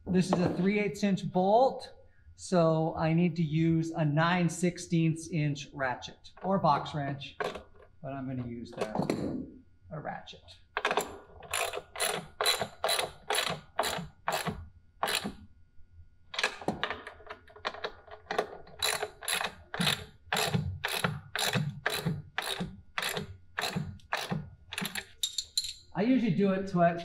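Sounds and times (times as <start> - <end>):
hand ratchet clicking: 10.8 - 15.4, 17.7 - 25.8.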